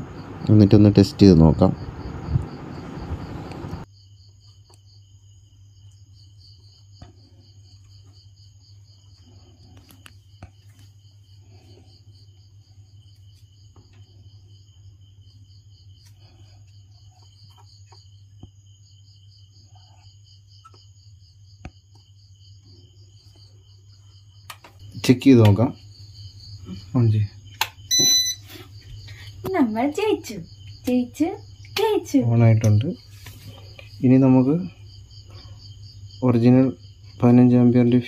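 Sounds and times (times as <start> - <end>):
crickets chirping: 0.0 - 38.0.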